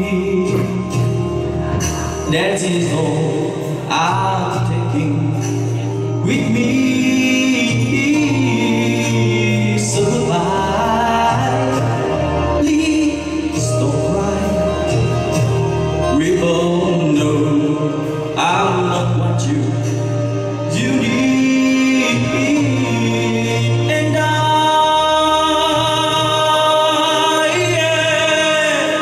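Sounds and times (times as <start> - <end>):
man singing into a microphone: 0.0 - 1.6, 2.2 - 29.0
instrumental backing music: 0.0 - 29.0.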